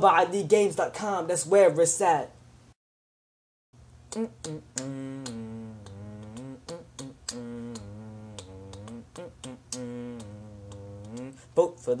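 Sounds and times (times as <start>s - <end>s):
finger snaps: 4.1s - 11.4s
man humming low notes: 4.1s - 11.5s.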